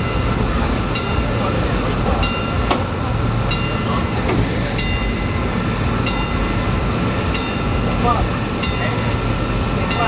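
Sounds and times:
level-crossing warning bell: 0.0s - 10.0s
train low rumble: 0.0s - 10.0s.

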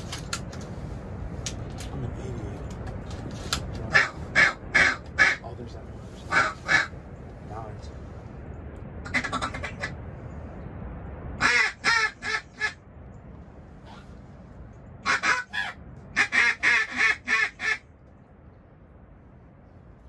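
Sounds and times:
wind rumble on microphone: 0.0s - 20.0s
duck quacking: 9.1s - 9.9s, 15.0s - 17.8s.

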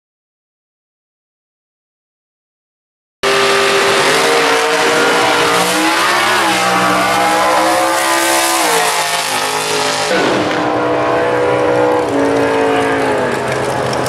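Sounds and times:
race car engines at full throttle: 3.2s - 14.0s.

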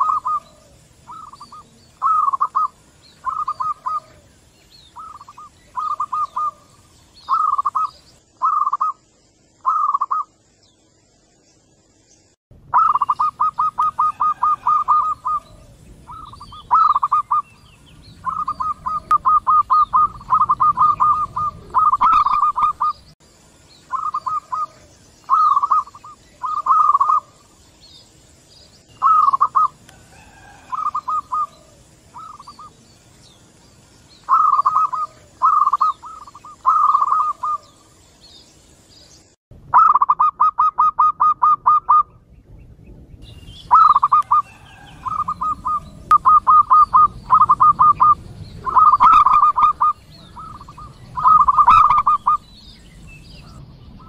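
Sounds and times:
doves cooing: 0.0s - 9.0s, 12.7s - 23.2s, 23.9s - 27.6s, 29.0s - 33.4s, 34.1s - 38.0s, 39.7s - 42.2s, 43.7s - 52.7s.

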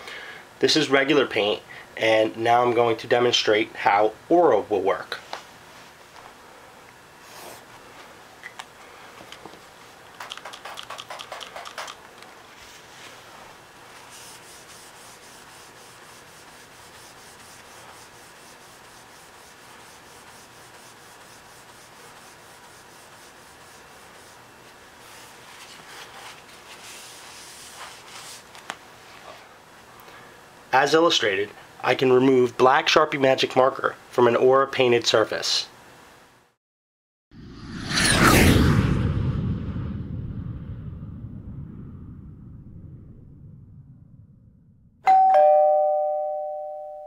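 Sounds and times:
hand scrubbing painted surface: 13.9s - 28.5s.

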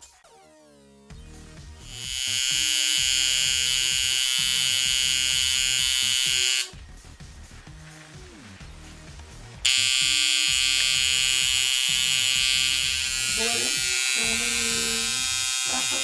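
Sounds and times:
tattoo machine buzzing: 1.8s - 6.8s, 9.6s - 16.0s.

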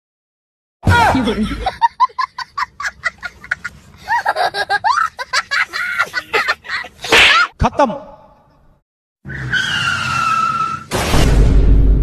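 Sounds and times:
loud laughter: 0.9s - 7.9s.

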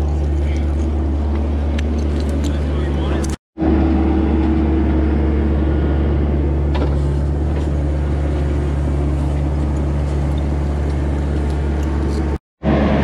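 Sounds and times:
diesel engine running: 0.0s - 13.0s
excavator bucket digging: 6.4s - 12.4s.

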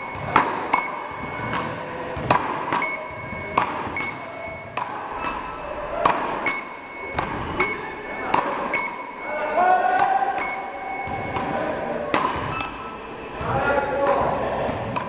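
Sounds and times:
short electronic beep: 0.0s - 1.6s, 2.8s - 9.6s, 10.3s - 11.8s, 12.4s - 13.4s
paddle racket hitting ball: 0.2s - 5.0s, 7.2s - 8.8s, 12.1s - 12.7s.

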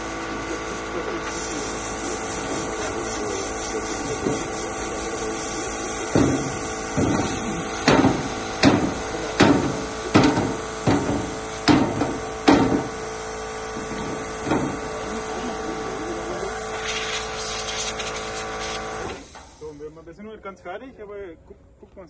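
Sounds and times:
air filter knocking on metal table: 6.1s - 13.0s, 14.0s - 14.8s.

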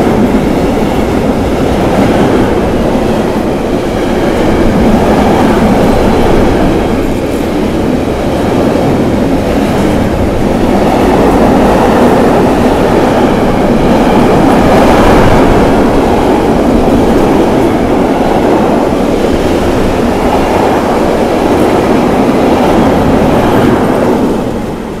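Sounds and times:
train wheels on rails: 0.0s - 25.0s.

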